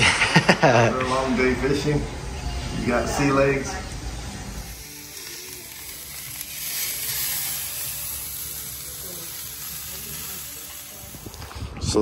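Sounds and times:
sausages sizzling on griddle: 0:04.5 - 0:11.6.

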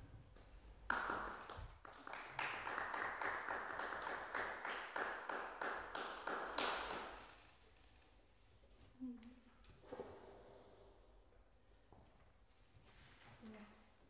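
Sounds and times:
small audience applauding: 0:00.8 - 0:07.8.

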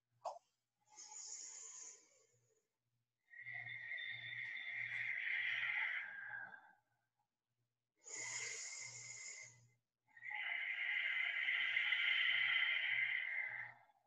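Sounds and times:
person breathing slowly: 0:00.9 - 0:02.4, 0:03.3 - 0:06.9, 0:08.0 - 0:14.0.

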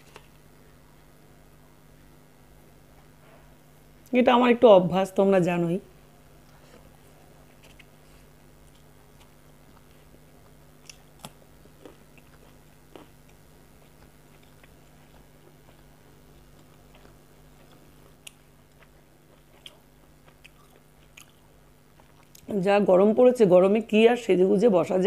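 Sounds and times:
steady low hum: 0:00.0 - 0:25.0
person chewing: 0:06.4 - 0:22.5.

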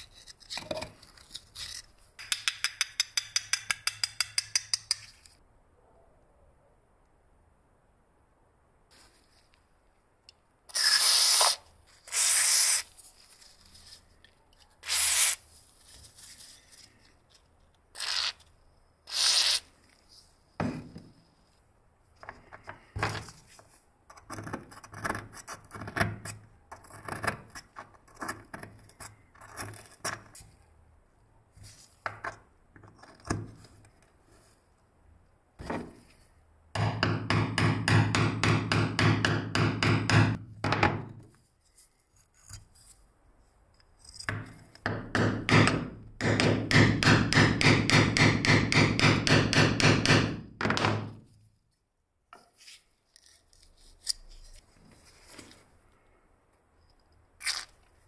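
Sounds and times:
metal tools clicking and scraping: 0:00.0 - 0:05.4.

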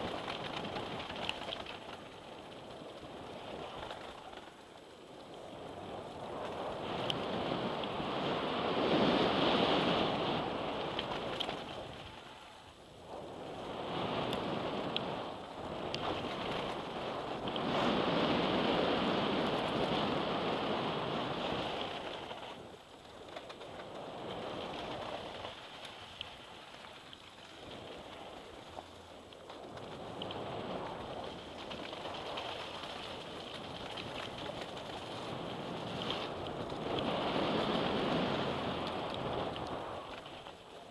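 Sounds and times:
light clicks and rattles: 0:00.0 - 0:07.2
bike tyres on dirt and gravel: 0:00.0 - 0:40.9
wind rushing over camera: 0:00.0 - 0:40.9.

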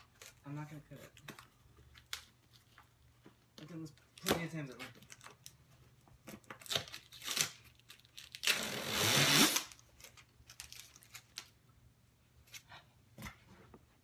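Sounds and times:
packing tape ripping: 0:06.4 - 0:11.6.

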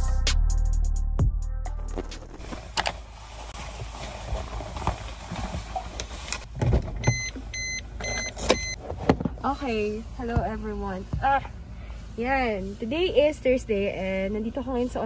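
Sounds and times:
clothing rustling: 0:02.0 - 0:06.6
car warning chime beeping: 0:07.0 - 0:08.8.

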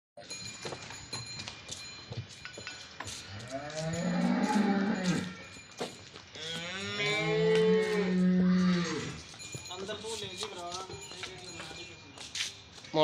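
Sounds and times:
cow mooing: 0:03.5 - 0:05.4, 0:06.4 - 0:09.2.

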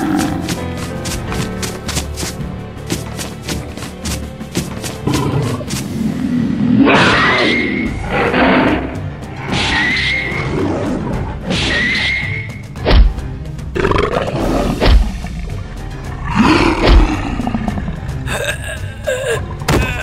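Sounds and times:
lion roaring and snarling: 0:00.0 - 0:01.8, 0:04.8 - 0:11.4, 0:13.7 - 0:18.3
background music: 0:00.0 - 0:20.0.

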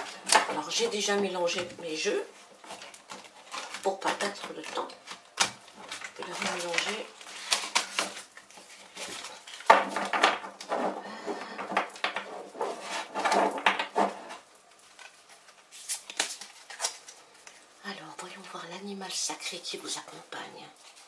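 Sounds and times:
cards being shuffled: 0:14.7 - 0:17.2.

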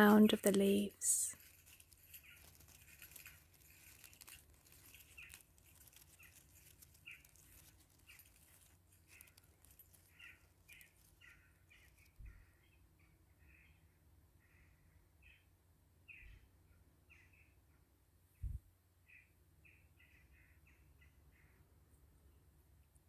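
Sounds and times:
leaves rustling in fingers: 0:00.0 - 0:12.2.

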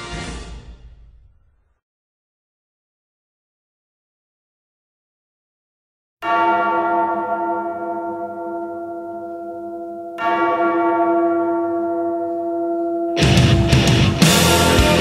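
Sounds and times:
large bell tolling: 0:06.2 - 0:15.0.

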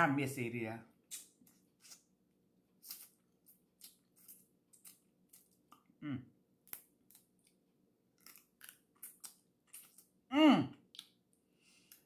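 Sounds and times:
wet mouth smacks while eating: 0:10.9 - 0:11.2.

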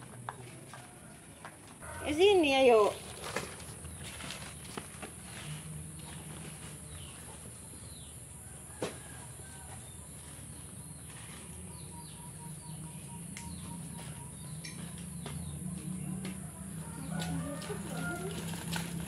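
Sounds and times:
birds chirping: 0:09.9 - 0:16.2.

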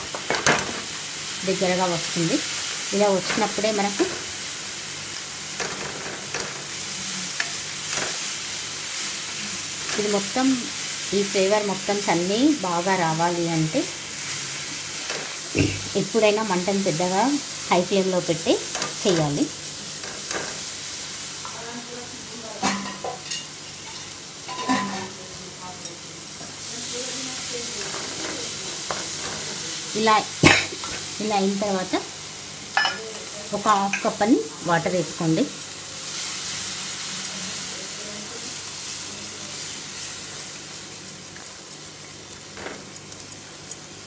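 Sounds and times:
masala sizzling in a pan: 0:00.0 - 0:44.0.

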